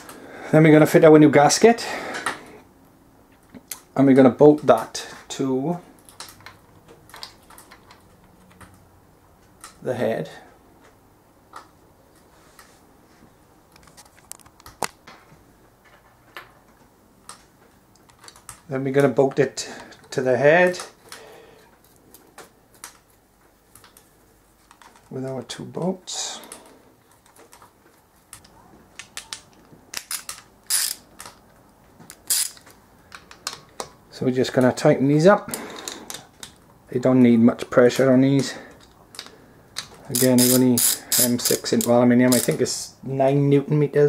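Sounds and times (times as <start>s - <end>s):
clicks of small metal parts handled: 28.3s - 31.5s, 38.7s - 42.6s.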